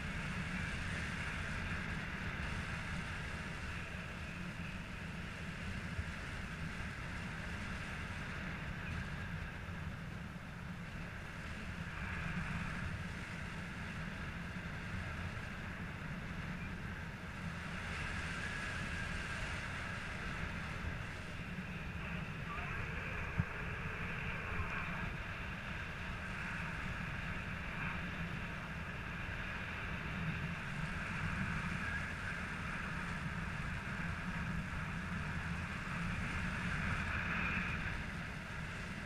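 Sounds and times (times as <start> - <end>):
wind buffeting microphone: 0.0 - 39.0.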